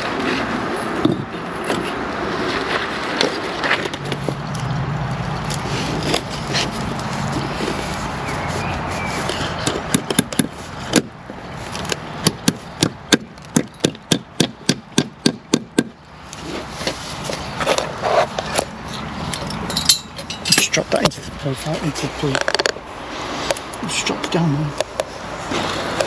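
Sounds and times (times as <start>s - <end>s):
hammer hitting nail: 9.6s - 11.1s, 12.2s - 16.0s.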